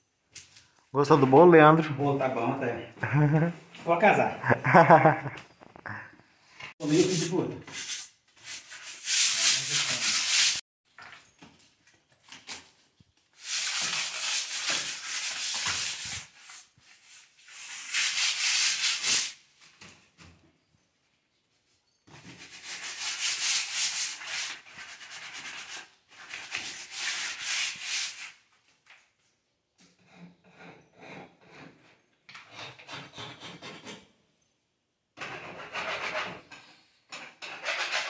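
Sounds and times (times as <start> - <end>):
sandpaper rubbing on plaster wall: 6.8 - 10.6, 13.4 - 19.4, 22.2 - 28.4, 35.3 - 36.4, 37.4 - 38.0.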